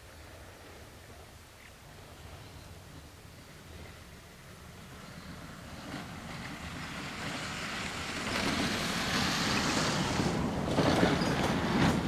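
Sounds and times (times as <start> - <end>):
vehicle passing: 4.7 - 12.0.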